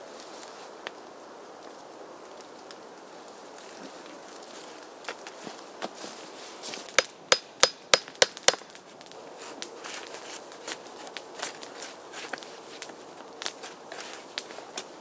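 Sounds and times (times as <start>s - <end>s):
sharp knocks with metallic ring: 7.0s - 8.6s.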